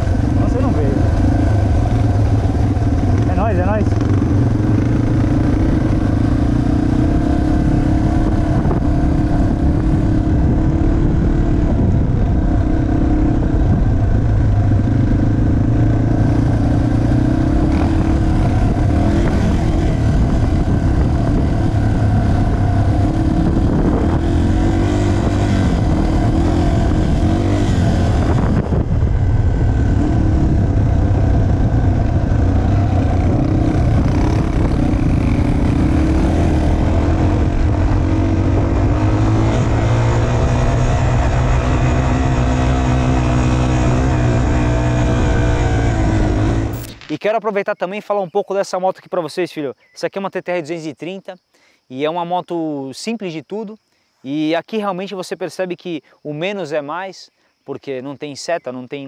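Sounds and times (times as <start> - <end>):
motorcycle engine revving: 0.0 - 47.0.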